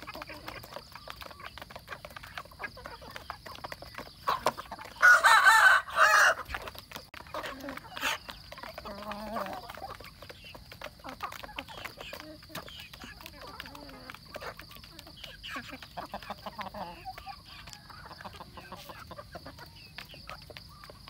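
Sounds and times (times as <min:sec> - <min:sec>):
chickens clucking: 0:00.0 - 0:21.0
chickens pecking on plastic plates: 0:00.0 - 0:21.0
rooster crowing: 0:05.0 - 0:06.4.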